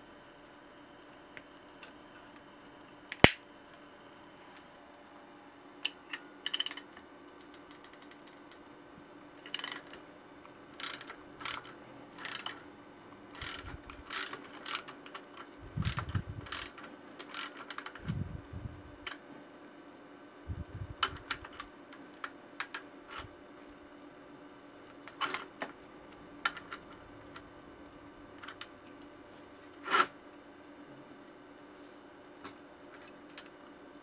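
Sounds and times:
side cutters snapping cable: 0:03.1 - 0:03.4
socket ratchet clicking: 0:06.1 - 0:08.5, 0:09.4 - 0:10.0, 0:10.8 - 0:12.6, 0:13.3 - 0:18.0, 0:26.5 - 0:27.4.

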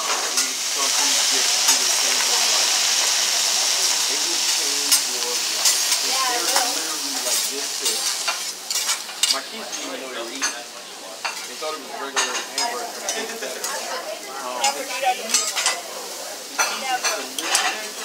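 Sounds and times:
food sizzling on griddle: 0:00.0 - 0:18.0
metal spatulas clinking and scraping: 0:04.9 - 0:10.6, 0:14.6 - 0:15.8, 0:16.6 - 0:18.0.

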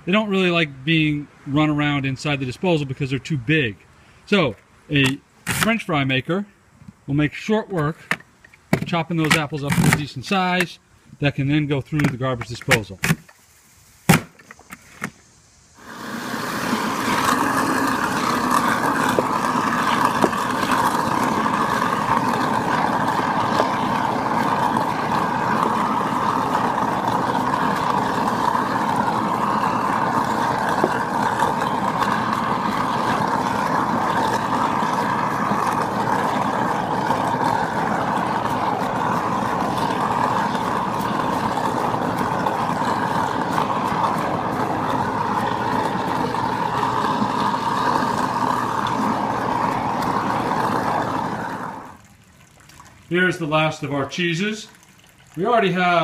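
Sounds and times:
garbage disposal running: 0:15.8 - 0:56.0.

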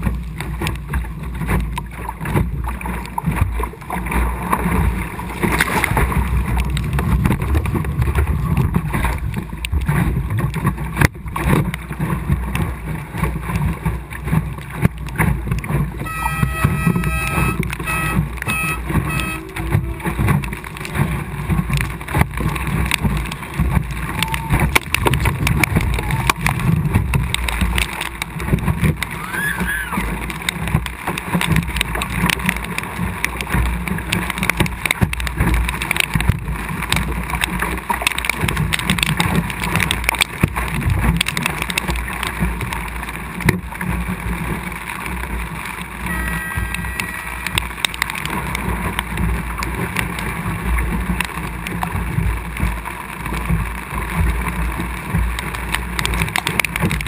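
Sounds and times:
water splashing against hull: 0:00.0 - 0:57.0
short beeps: 0:16.0 - 0:20.1, 0:46.1 - 0:47.6
wind buffeting microphone: 0:17.0 - 0:30.9.

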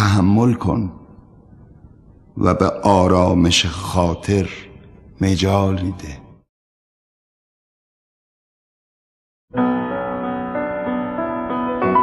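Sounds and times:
piano music: 0:09.5 - 0:12.0.

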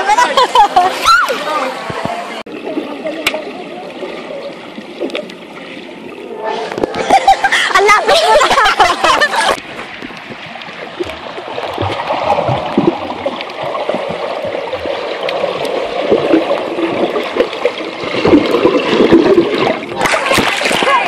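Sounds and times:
underwater swishes: 0:00.0 - 0:21.0
underwater gurgling and bubbling: 0:03.5 - 0:07.5, 0:09.4 - 0:20.4.

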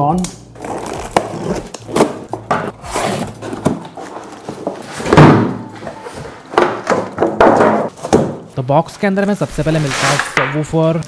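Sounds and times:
cardboard box flaps scraping: 0:02.6 - 0:05.1.

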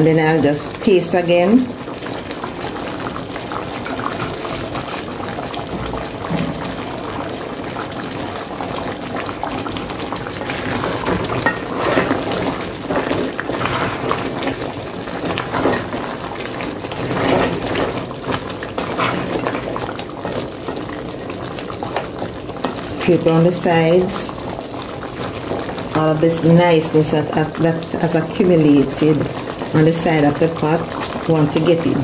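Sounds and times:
stew bubbling in a pot: 0:00.0 - 0:32.0
wooden spoon stirring: 0:10.3 - 0:24.2.

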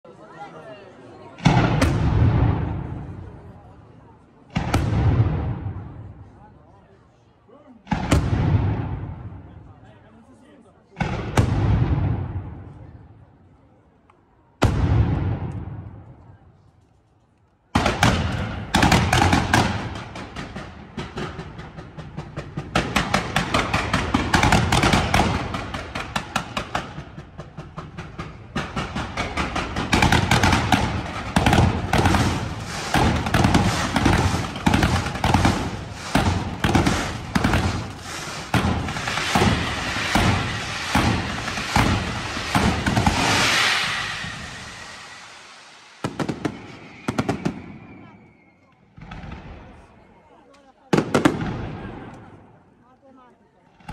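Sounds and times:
fireworks bursting and crackling: 0:01.4 - 0:06.4, 0:07.8 - 0:09.8, 0:17.8 - 0:50.3, 0:50.9 - 0:52.4.

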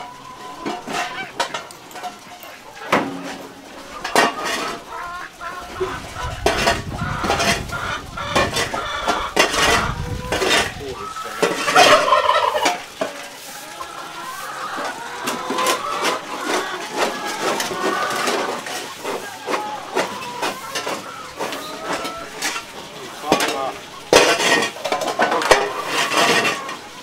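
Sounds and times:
animal calls: 0:02.2 - 0:24.2.

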